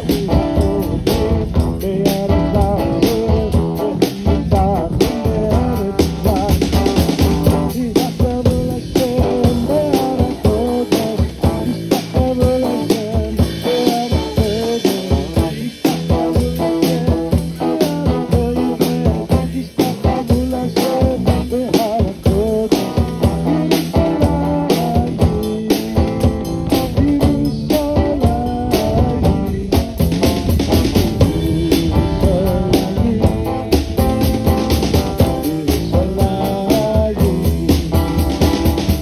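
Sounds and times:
drum kit beat: 0:00.0 - 0:39.0
electric and acoustic guitars: 0:00.0 - 0:39.0.

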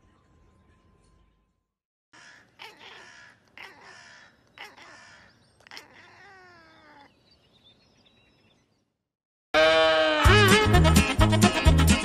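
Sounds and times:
cat meowing: 0:05.6 - 0:07.2.

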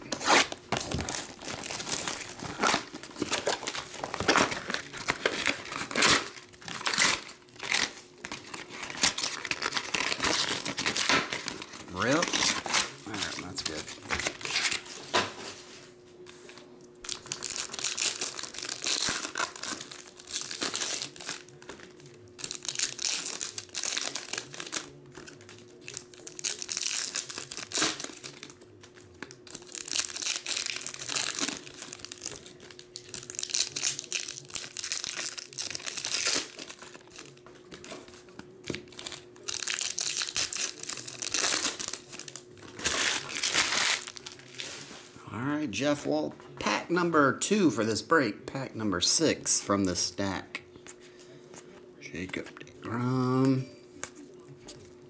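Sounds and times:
foil wrappers crinkling and tearing: 0:00.0 - 0:15.7, 0:17.0 - 0:45.1.

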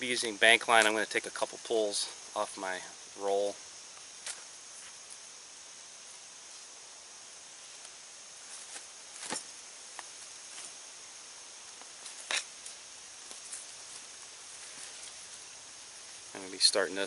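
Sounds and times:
insects buzzing: 0:00.0 - 0:17.0
crackling rustles of handled gear: 0:11.7 - 0:15.4.

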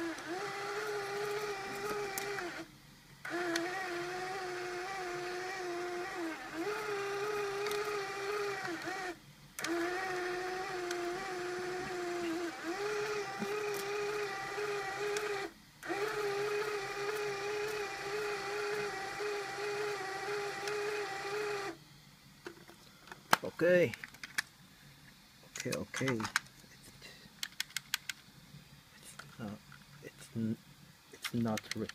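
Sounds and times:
small electric motor whine: 0:00.0 - 0:22.8.

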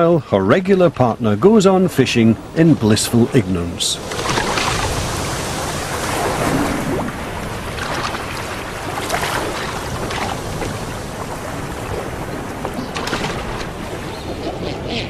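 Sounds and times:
sea waves washing: 0:00.0 - 0:15.0
wind: 0:00.0 - 0:15.0.

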